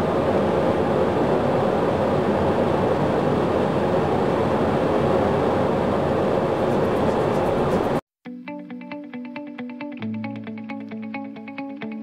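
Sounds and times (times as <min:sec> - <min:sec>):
jet engine spooling up: 0:00.0 - 0:08.0.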